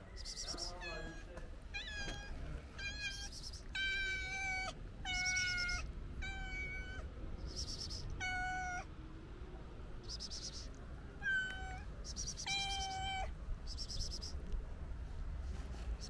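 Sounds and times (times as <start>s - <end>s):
cat meowing: 0.7s - 8.9s, 11.2s - 13.3s.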